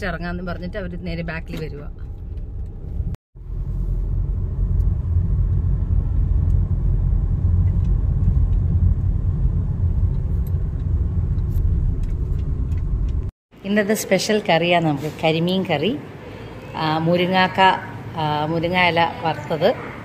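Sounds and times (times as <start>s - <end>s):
car engine and tyre noise: 0.0s - 13.3s.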